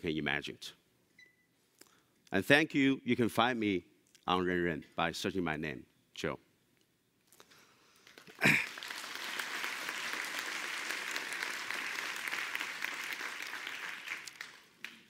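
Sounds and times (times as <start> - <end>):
large audience applauding: 8.0 - 15.0.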